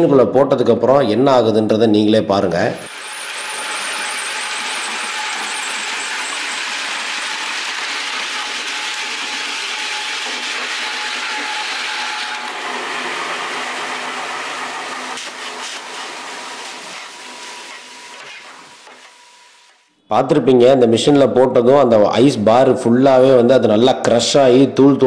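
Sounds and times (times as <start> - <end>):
ice crusher grinding ice: 2.9 - 19.8.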